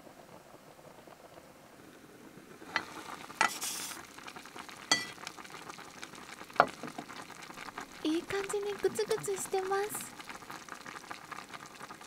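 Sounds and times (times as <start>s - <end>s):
pot simmering: 0.0s - 12.0s
steam hiss: 1.9s - 4.1s
metal lid clinks: 4.9s - 5.1s.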